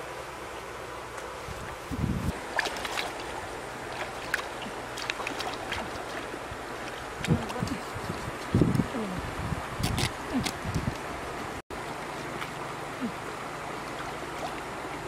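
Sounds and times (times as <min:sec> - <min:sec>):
river water lapping and splashing: 0:00.0 - 0:08.6, 0:09.6 - 0:15.0
wind buffeting microphone: 0:01.4 - 0:02.6, 0:04.4 - 0:11.6.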